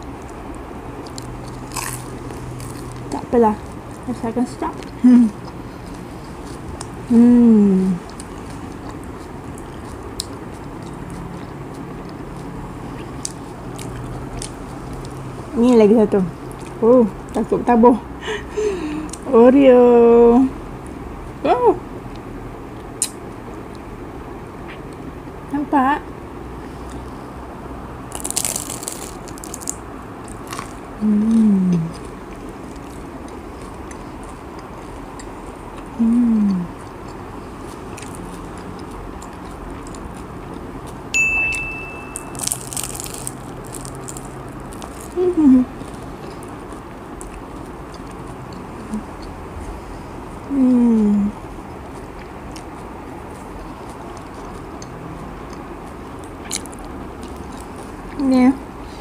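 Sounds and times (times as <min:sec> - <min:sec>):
low background hum: 0:00.0 - 0:59.0
chewing: 0:00.1 - 0:07.0, 0:07.9 - 0:17.4, 0:28.1 - 0:41.0, 0:42.1 - 0:49.8, 0:51.6 - 0:58.2
crunchy bite: 0:01.0 - 0:03.0, 0:28.1 - 0:34.1, 0:42.1 - 0:48.2, 0:56.2 - 0:57.7.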